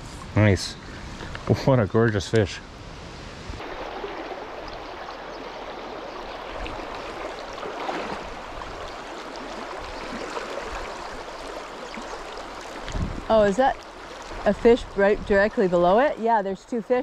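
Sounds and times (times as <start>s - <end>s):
stream flowing over rocks: 3.6s - 16.9s.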